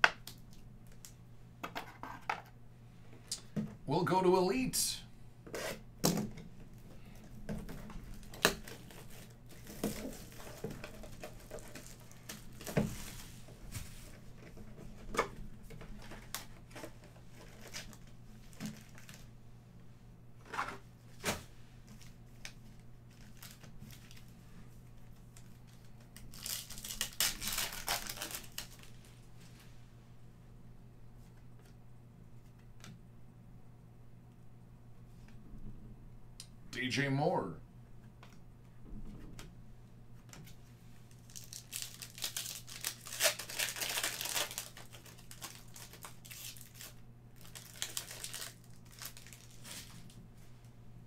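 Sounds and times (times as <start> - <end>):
foil packs crinkling and tearing: 7.9 - 13.4, 15.7 - 19.3, 22.0 - 24.3, 25.2 - 29.1, 41.1 - 50.2.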